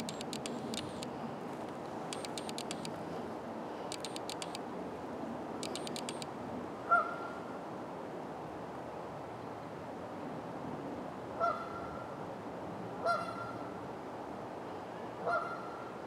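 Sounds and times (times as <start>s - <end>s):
rapid high clicks: 0.0s - 1.1s, 2.1s - 3.0s, 3.9s - 4.6s, 5.6s - 6.3s
outdoor background hiss: 0.0s - 16.0s
waterfowl honk: 15.3s - 15.6s.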